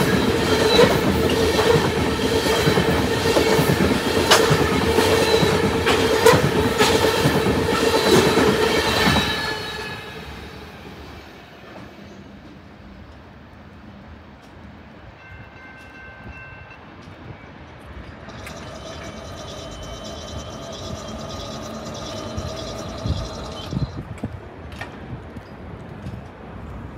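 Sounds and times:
train wheels clattering over rail joints: 0.0 - 9.6, 17.9 - 26.5
high-pitched steady tone: 18.1 - 24.0
wheel squealing: 18.1 - 24.0.

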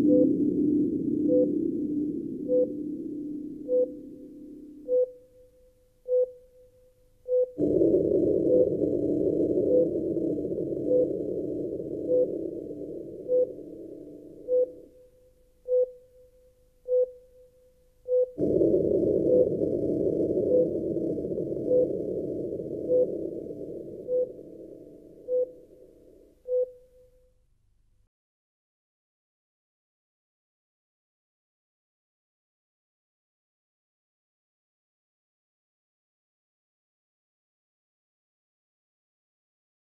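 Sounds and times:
steady electronic beeps: 0.0 - 5.2, 7.3 - 15.0, 18.1 - 26.8
low droning hum: 0.0 - 5.3, 7.5 - 15.0, 18.3 - 26.4.

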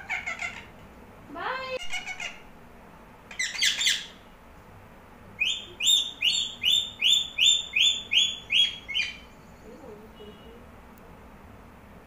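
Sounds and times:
parakeet calling: 0.0 - 0.8, 1.6 - 2.5, 3.3 - 4.2, 5.4 - 10.6.

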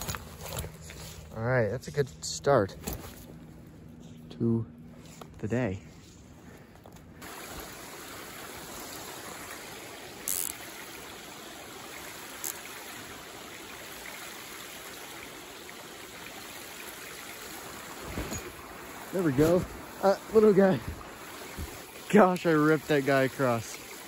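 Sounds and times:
running water: 7.2 - 24.0.

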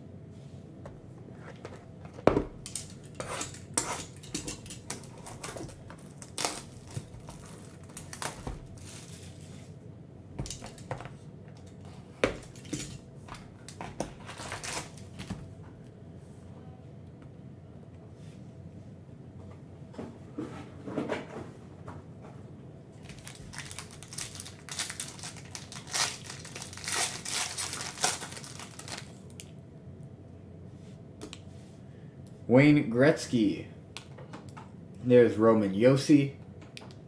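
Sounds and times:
shrink wrap crinkling and tearing: 2.8 - 9.5, 13.6 - 15.2, 23.0 - 29.5.

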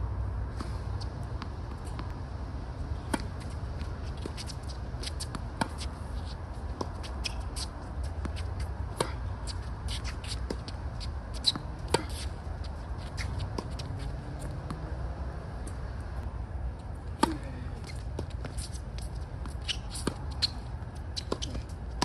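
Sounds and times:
racket hitting tennis ball: 3.0 - 12.4.

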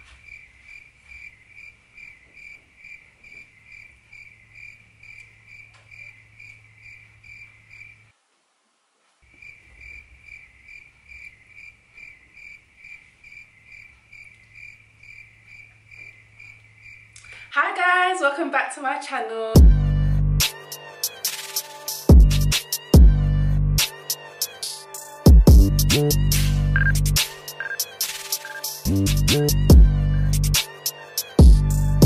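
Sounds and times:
crickets chirping: 0.0 - 8.2, 9.2 - 17.5, 26.8 - 28.9.

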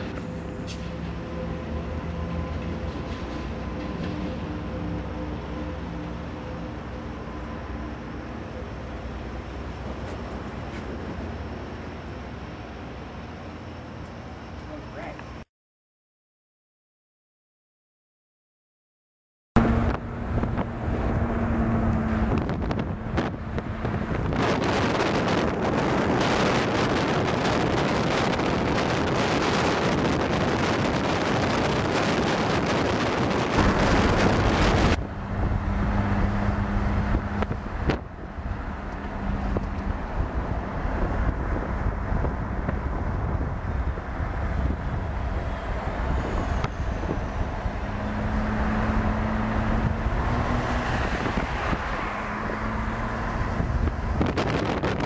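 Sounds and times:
moving vehicle rumble: 0.0 - 15.5, 19.6 - 55.0
wind buffeting microphone: 19.6 - 55.0.

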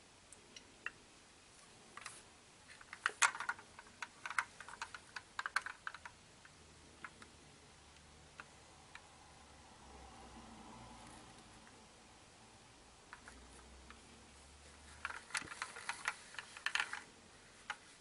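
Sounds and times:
model car clicking in hands: 2.7 - 7.3, 14.9 - 17.9.

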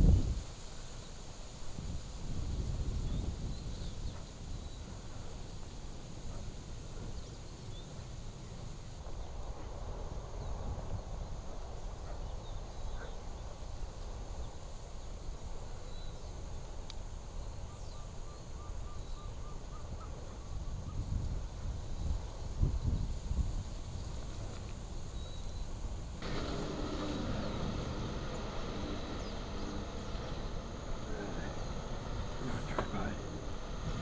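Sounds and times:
low rumble with hiss: 0.0 - 34.0
faint bird chirps: 17.4 - 21.1.

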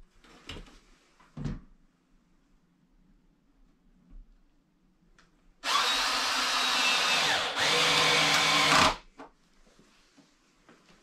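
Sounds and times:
power drill whining: 5.6 - 9.0.

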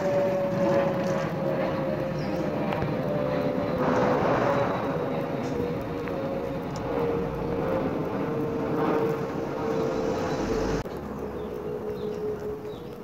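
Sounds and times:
engine-like hum: 0.0 - 13.0
rushing noise: 3.8 - 11.1.

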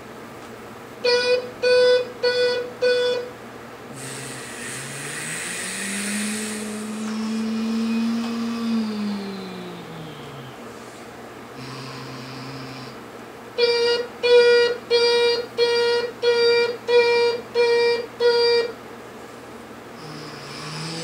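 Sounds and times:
toy horn beeps: 1.0 - 3.3, 13.6 - 18.7
recorded engine sound: 3.9 - 17.3.

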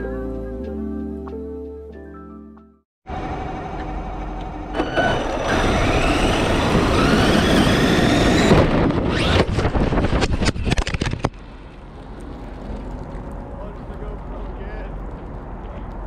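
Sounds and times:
electric motor whining: 3.8 - 9.8
toy truck crashing and tumbling: 4.8 - 11.4.

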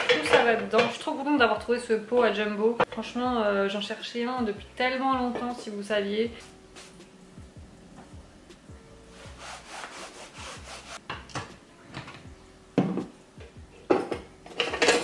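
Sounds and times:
items rubbing and scraping on worktop: 6.4 - 7.1, 9.1 - 12.2, 13.9 - 15.0
objects knocking on worktop: 12.8 - 13.2, 13.9 - 15.0.

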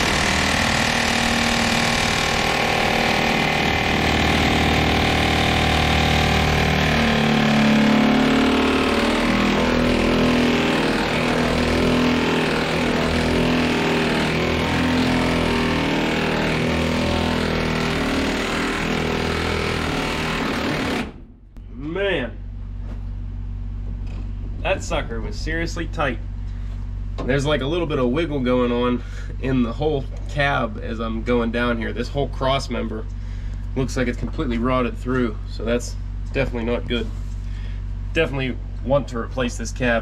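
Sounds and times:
impact wrench hammering: 0.0 - 21.5.

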